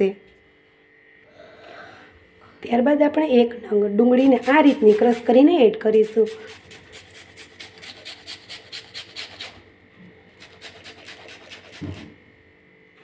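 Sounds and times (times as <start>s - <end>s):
onion rasping on a grater: 4.1s - 9.7s, 10.3s - 12.1s.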